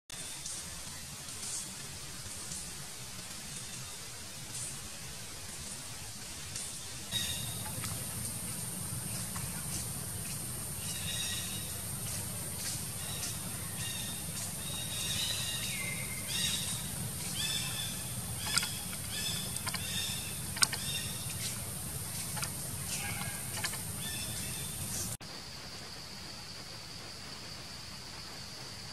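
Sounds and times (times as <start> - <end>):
steady low hum: 0.6 - 28.9
sharp clicks: 16.5 - 24.0.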